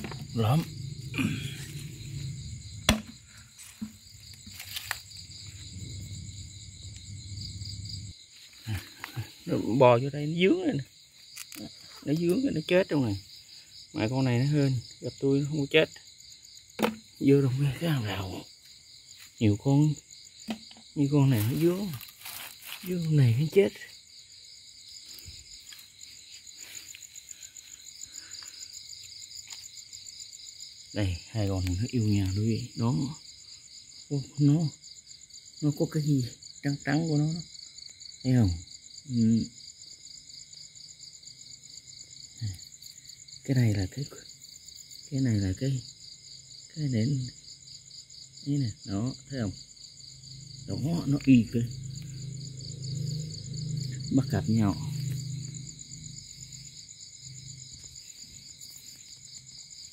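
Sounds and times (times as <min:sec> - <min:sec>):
crickets and insects chirping: 0:00.0 - 0:59.9
footsteps in leaf litter: 0:03.6 - 0:05.1, 0:21.4 - 0:23.1.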